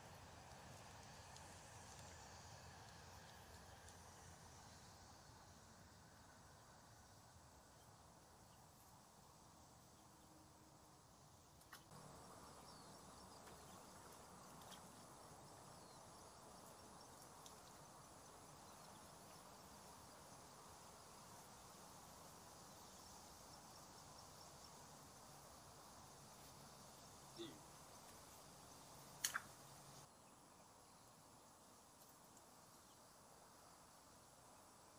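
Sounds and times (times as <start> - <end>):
steady high hiss: 0.0 - 34.9
faint chirps: 25.9 - 31.6.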